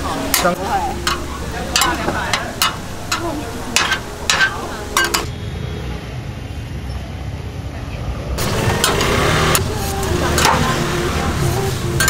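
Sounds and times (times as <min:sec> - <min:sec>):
rolls sizzling on a griddle: 0:00.0 - 0:05.3, 0:08.4 - 0:12.0
utensil scraping and clacking on pan: 0:00.3 - 0:05.3, 0:08.4 - 0:10.9.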